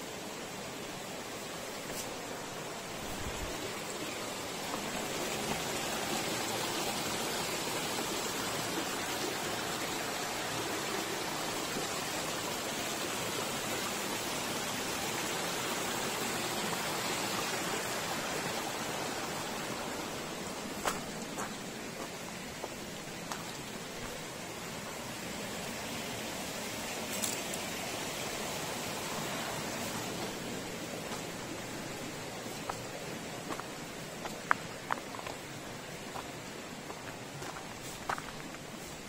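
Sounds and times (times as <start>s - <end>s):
water rushing: 0.0s - 39.0s.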